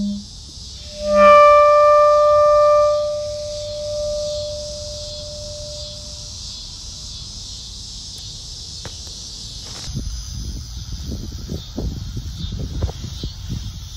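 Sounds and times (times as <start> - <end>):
insects chorus: 0.0 - 13.9
lingering musical tone: 0.8 - 6.3.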